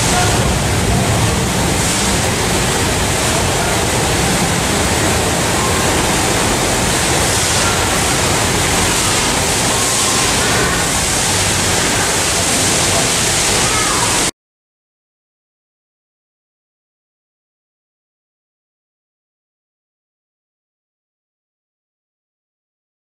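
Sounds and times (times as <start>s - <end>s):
low hum: 0.0s - 14.2s
train ventilation rushing hiss: 0.0s - 14.3s.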